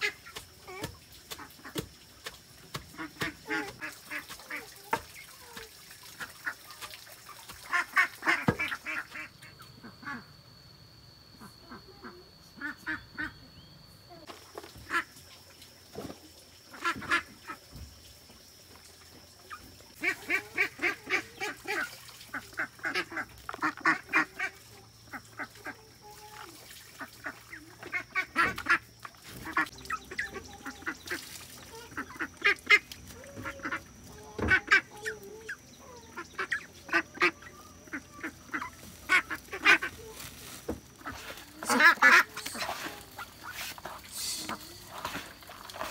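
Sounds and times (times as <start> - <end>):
ducks quacking: 7.6 - 9.3, 20.0 - 25.8, 27.0 - 40.2, 41.0 - 45.9.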